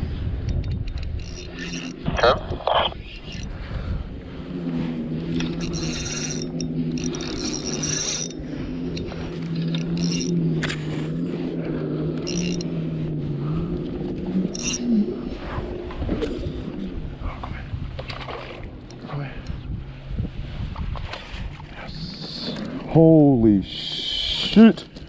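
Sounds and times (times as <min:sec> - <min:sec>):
fishing reel gear whirring: 0:00.3 - 0:17.2, 0:18.0 - 0:19.6
short rasps: 0:05.4 - 0:10.9.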